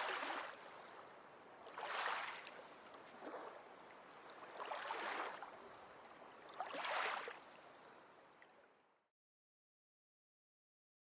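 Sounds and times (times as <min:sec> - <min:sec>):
waves washing in: 0:00.0 - 0:07.8.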